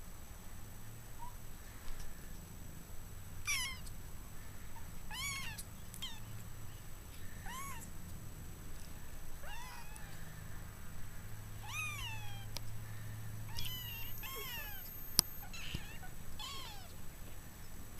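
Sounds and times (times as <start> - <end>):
kittens mewing: 3.4 - 3.9, 4.7 - 6.3, 7.2 - 7.9, 9.4 - 10.5, 11.6 - 17.0.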